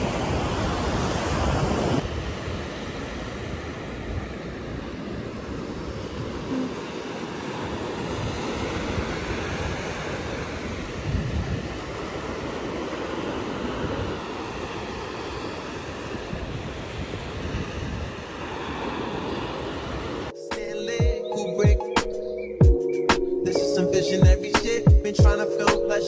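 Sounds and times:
wind rumbling on microphone: 0:00.0 - 0:20.3
waves breaking on shore: 0:00.0 - 0:20.4.

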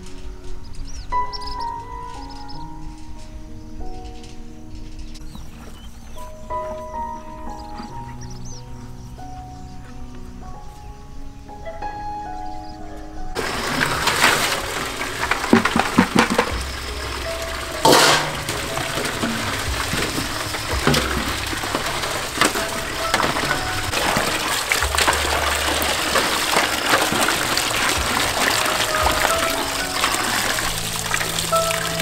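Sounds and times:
knocks and sloshes from handling: 0:13.4 - 0:32.0
loud splash: 0:13.4 - 0:32.0
tap water running into metal basin: 0:13.4 - 0:32.0.

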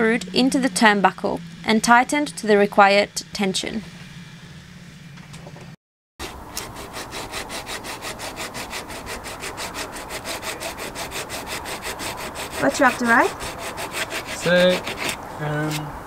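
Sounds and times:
hand tool rasping wood: 0:06.2 - 0:15.9.

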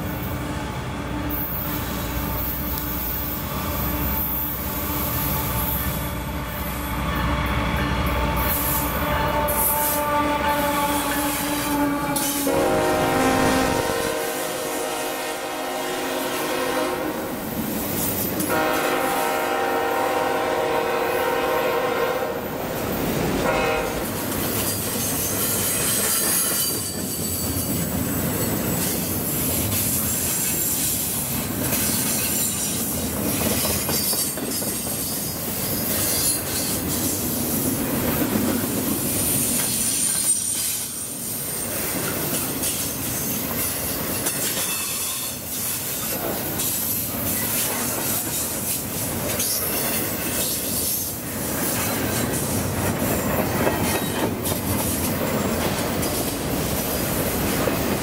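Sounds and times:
train wheels on rails: 0:00.0 - 0:58.0
locomotive horn blast: 0:07.2 - 0:17.5, 0:18.5 - 0:22.6, 0:23.4 - 0:24.2.

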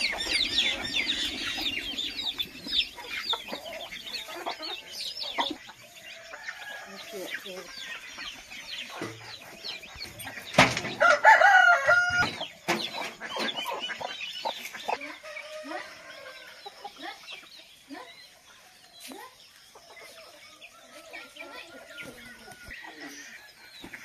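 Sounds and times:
chickens clucking: 0:00.0 - 0:24.0
rooster crowing: 0:11.0 - 0:12.4.

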